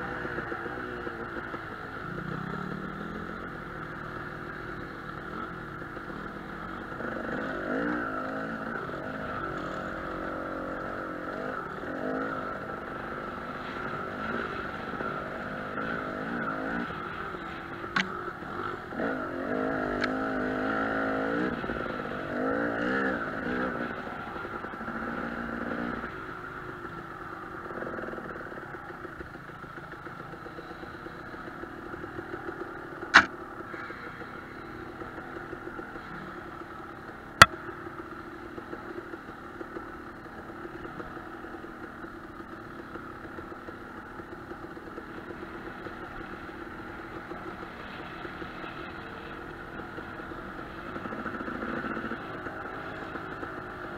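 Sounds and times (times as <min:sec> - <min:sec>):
dirt bike engine revving: 0:07.0 - 0:24.0, 0:33.0 - 0:34.8.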